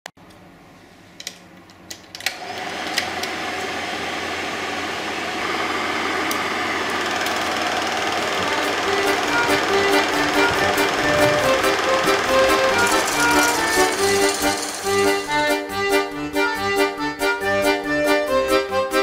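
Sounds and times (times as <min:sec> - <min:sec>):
film projector whirring and clattering: 0:01.9 - 0:15.7.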